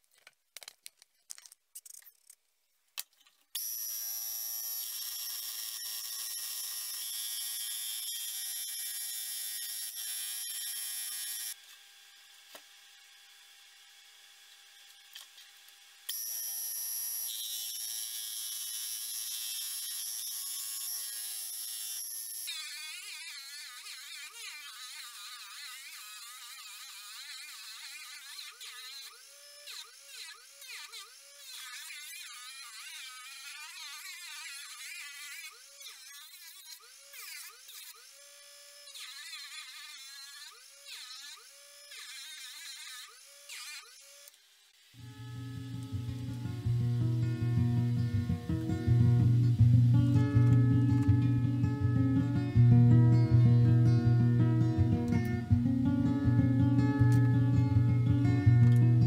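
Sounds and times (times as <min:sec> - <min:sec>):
rotary tool high whine: 0:03.6 - 0:44.4, 0:45.0 - 0:59.0.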